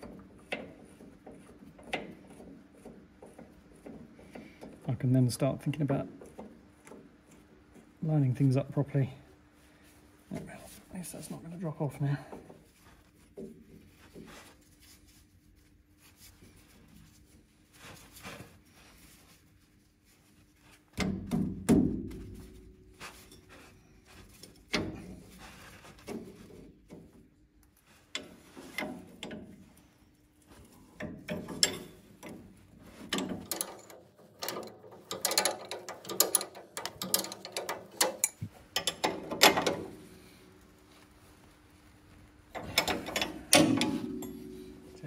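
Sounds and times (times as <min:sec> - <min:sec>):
spanner clicking on nut: 0:33.1 - 0:39.8
metal knocks: 0:42.6 - 0:45.0.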